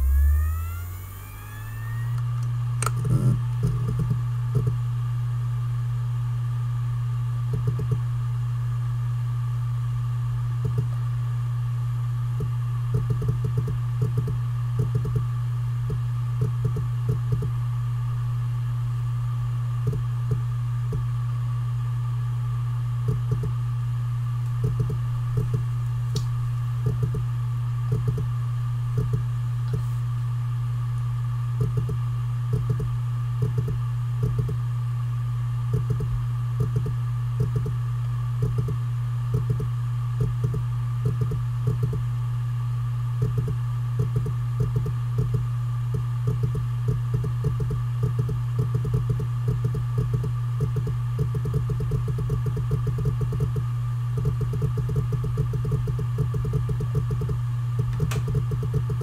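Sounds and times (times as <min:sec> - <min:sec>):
high whine: 0:00.0 - 0:02.9
hard drive spinning hum: 0:00.0 - 0:59.0.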